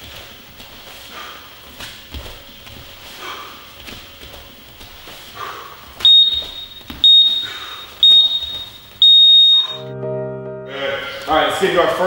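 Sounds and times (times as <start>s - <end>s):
digital timer beeping: 6.0s - 9.9s
music: 9.4s - 12.0s.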